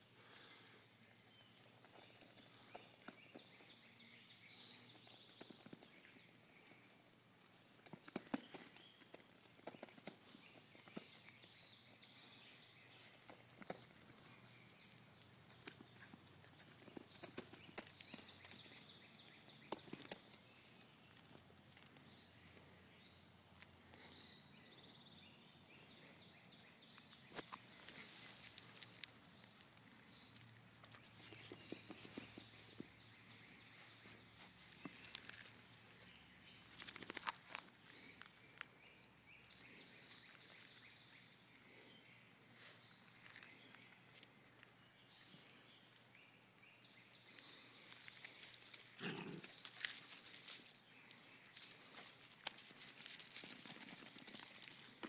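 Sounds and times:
claws tapping on concrete: 7.8 - 12.1, 14.9 - 20.4
paws scampering through dry leaves: 48.0 - 55.0.

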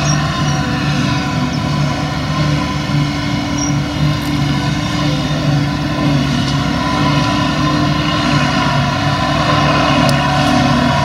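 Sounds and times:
forage harvester chopping grass: 0.0 - 11.0
tractor running: 0.0 - 11.0.

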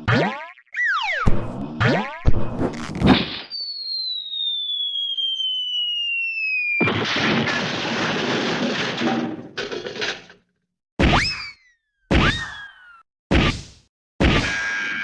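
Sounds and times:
falling bomb whistle: 3.2 - 7.0
rumbling explosion: 6.8 - 9.4.

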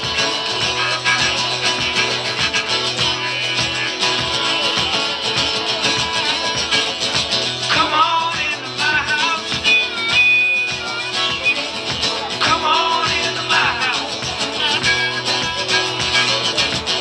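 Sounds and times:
acoustic guitar: 0.0 - 17.0
drum kit groove: 0.0 - 17.0
high bending melody line: 0.0 - 17.0.

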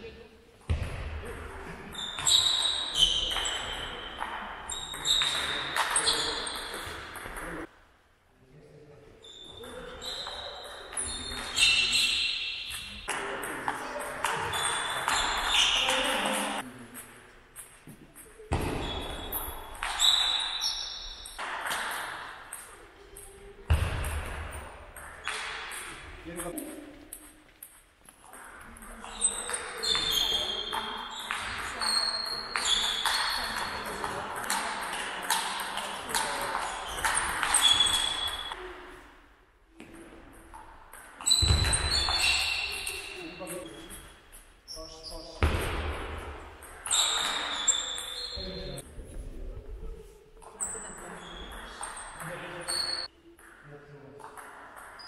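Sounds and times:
shoe squeak: 1.9 - 7.2, 9.2 - 13.2, 13.9 - 16.6, 17.6 - 23.5, 28.8 - 38.7, 41.2 - 45.5, 46.7 - 48.8, 50.4 - 53.1.

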